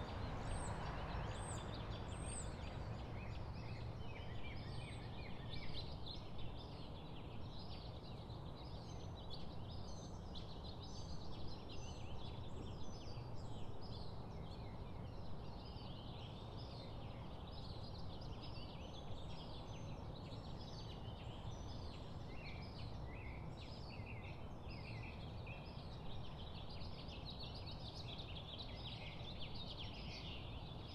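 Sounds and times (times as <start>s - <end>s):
small birds chirping: 0.0s - 30.9s.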